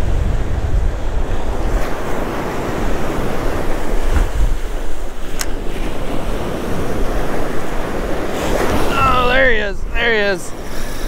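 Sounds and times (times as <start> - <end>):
surf washing onto beach: 0.0 - 11.0
wind buffeting microphone: 0.0 - 11.0
sharp click: 5.3 - 5.6.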